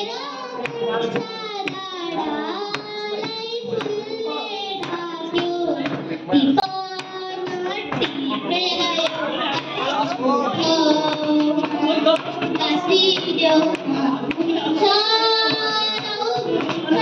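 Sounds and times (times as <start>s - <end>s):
girl singing into microphone: 0.0s - 17.0s
people clapping: 7.0s - 17.0s.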